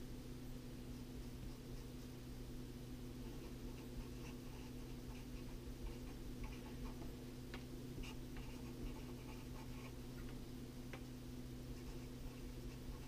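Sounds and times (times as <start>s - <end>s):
low electrical hum: 0.0s - 13.0s
marker pen scratching on paper: 3.2s - 7.1s, 8.0s - 10.0s, 11.7s - 13.0s.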